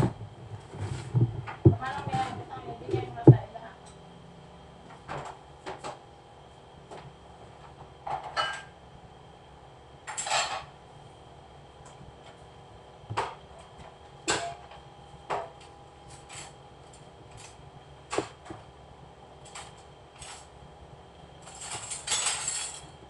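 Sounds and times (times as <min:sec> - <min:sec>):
steady hum: 0:00.0 - 0:23.0
dishes clattering: 0:10.1 - 0:10.7
dishes clinking: 0:10.1 - 0:10.7.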